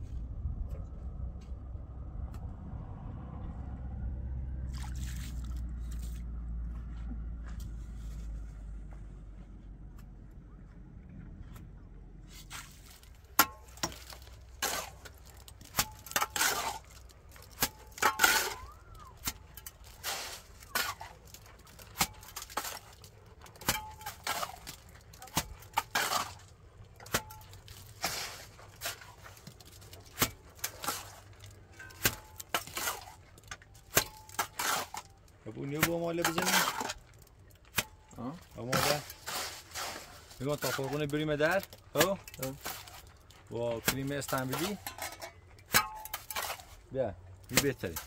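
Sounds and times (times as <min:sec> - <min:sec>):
metal hand tools clinking and scraping: 0:12.4 - 0:48.0.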